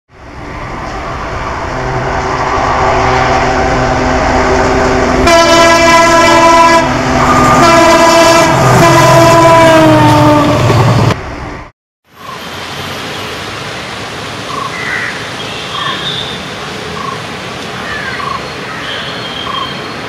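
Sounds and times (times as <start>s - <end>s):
diesel locomotive engine drone: 0.1s - 20.0s
locomotive air horn blasts: 1.7s - 4.2s, 5.2s - 10.6s.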